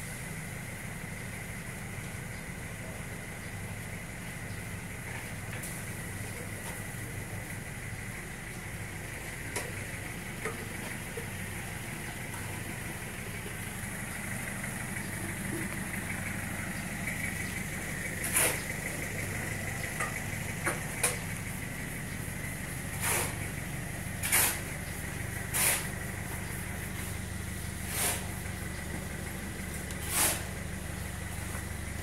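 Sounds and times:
short hisses: 23.0 - 23.4, 25.5 - 25.9, 27.8 - 28.4, 30.0 - 30.5.

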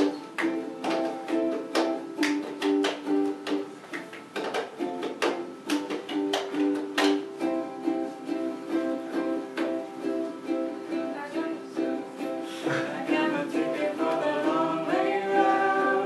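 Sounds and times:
hand claps: 0.0 - 7.4
ukulele strumming: 0.0 - 16.0.

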